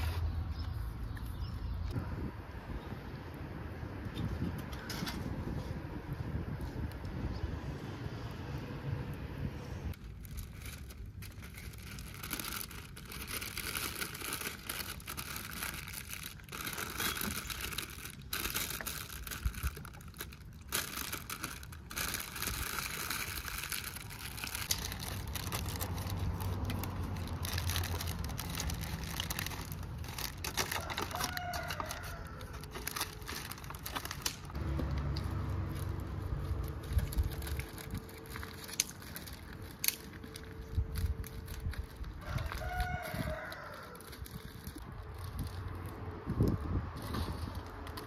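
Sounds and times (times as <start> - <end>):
paper and foil crinkling: 10.0 - 48.0.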